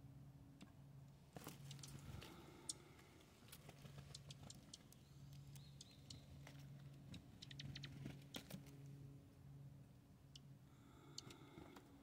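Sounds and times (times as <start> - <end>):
faint ticks: 1.6 - 6.2, 10.3 - 11.9.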